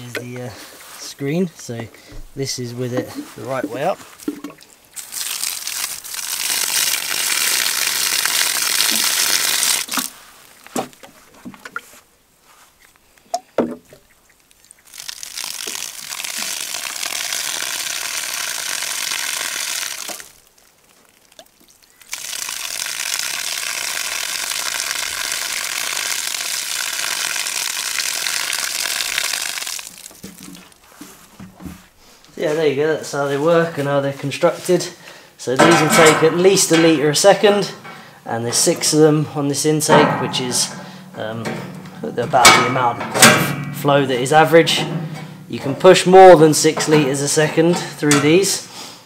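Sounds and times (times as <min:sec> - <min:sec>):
water running through screen: 0:00.0 - 0:48.8
water splashing onto grass: 0:02.9 - 0:12.0, 0:13.3 - 0:31.3.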